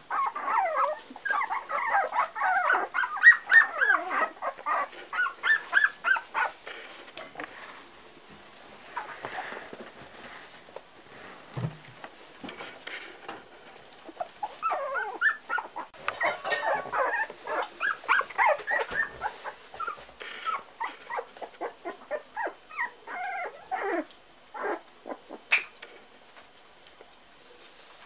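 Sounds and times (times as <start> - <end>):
puppies whining and yipping: 0.0 - 6.6, 14.0 - 25.5.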